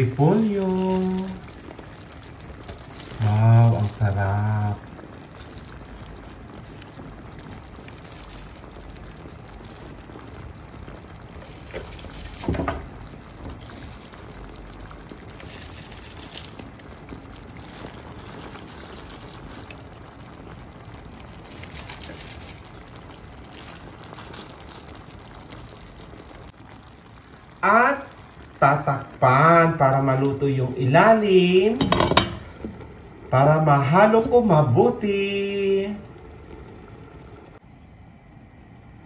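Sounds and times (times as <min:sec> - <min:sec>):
cabbage leaves rustling: 0:00.0 - 0:10.3, 0:10.9 - 0:25.5
sauce simmering and sizzling in pan: 0:00.0 - 0:39.0.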